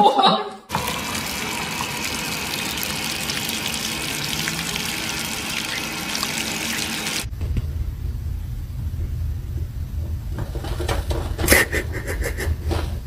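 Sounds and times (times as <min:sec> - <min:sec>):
water jet spraying: 0:00.7 - 0:07.3
low rumble: 0:07.3 - 0:10.4.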